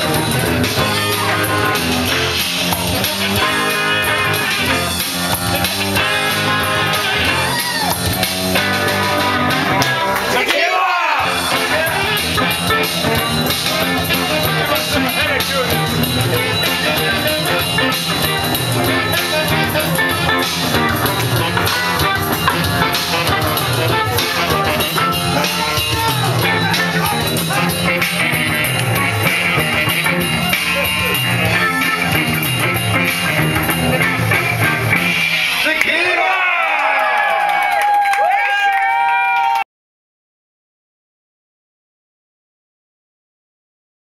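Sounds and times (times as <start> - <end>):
electric guitar: 0.0 - 10.4, 11.2 - 35.8
drums: 0.0 - 10.6, 11.2 - 36.2
rock band playing dance music: 0.0 - 36.7.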